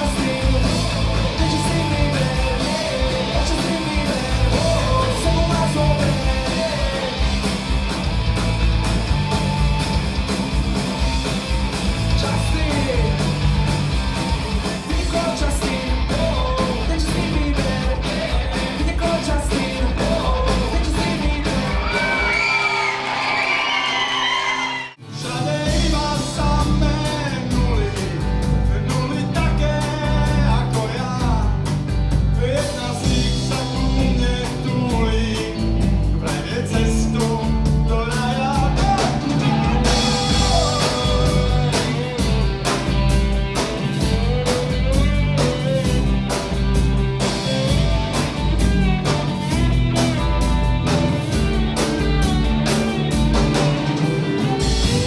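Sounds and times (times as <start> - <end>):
person singing: 0.0 - 7.6, 12.1 - 13.5, 14.5 - 22.8, 24.5 - 31.7, 32.3 - 42.5
bass and drums: 0.0 - 55.0
electric slide guitar: 38.8 - 55.0.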